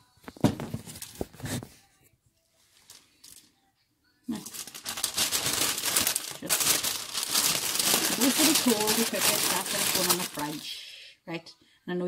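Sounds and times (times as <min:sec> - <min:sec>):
wrapping sheet crinkling: 0:04.3 - 0:10.8.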